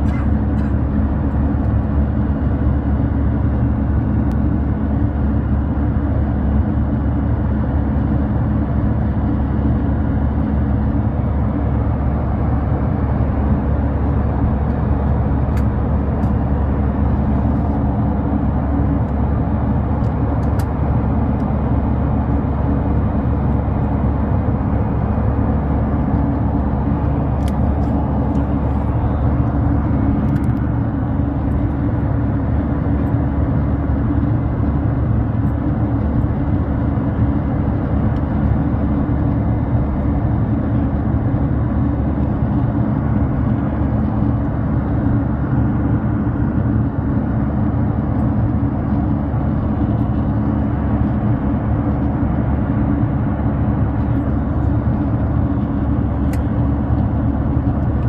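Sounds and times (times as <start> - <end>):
airliner cabin rumble: 0.0 - 58.0.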